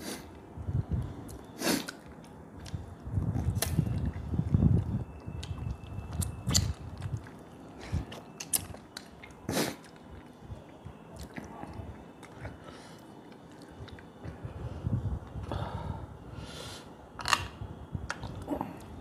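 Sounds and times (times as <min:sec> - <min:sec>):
wet mouth clicks and smacks: 0:04.8 - 0:07.3.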